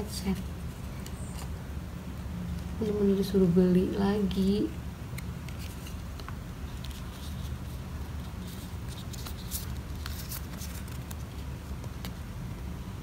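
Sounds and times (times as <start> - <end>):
steady low hum: 0.0 - 13.0
paper cards rustling and clicking: 0.1 - 1.6, 5.1 - 12.7.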